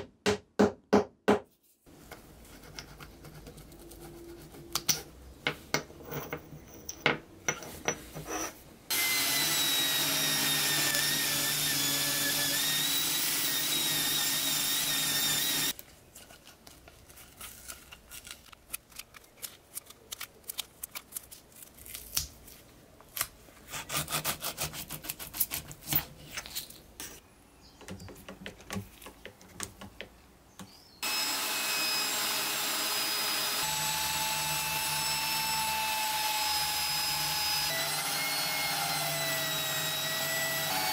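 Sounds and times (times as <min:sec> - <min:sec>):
drill spinning: 0:08.9 - 0:15.8, 0:31.0 - 0:40.9
power tool running: 0:08.9 - 0:15.8, 0:31.0 - 0:40.9.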